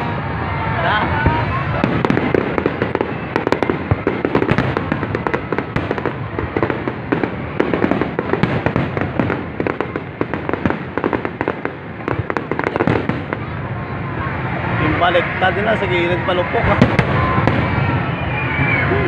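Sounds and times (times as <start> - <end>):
fireworks bursting and crackling: 0.0 - 19.0
fireworks bangs and pops: 1.1 - 13.7, 16.6 - 18.8.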